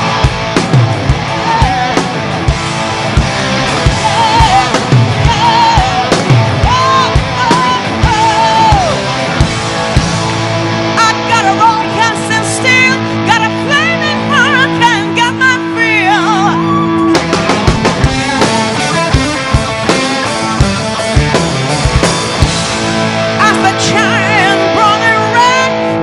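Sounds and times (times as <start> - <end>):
drum beats: 0.0 - 11.0, 17.0 - 24.2
woman singing: 3.9 - 9.1, 11.0 - 16.8, 23.4 - 26.0.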